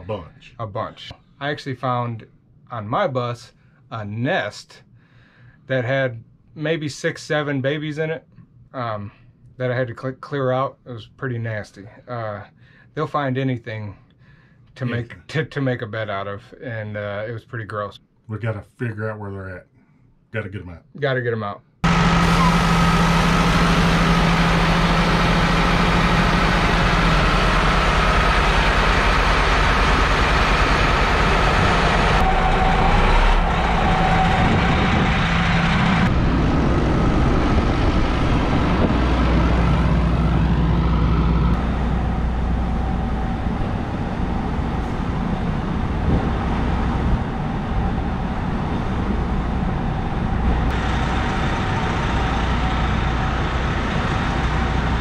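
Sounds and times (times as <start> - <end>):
engine idling hum: 21.8 - 55.0.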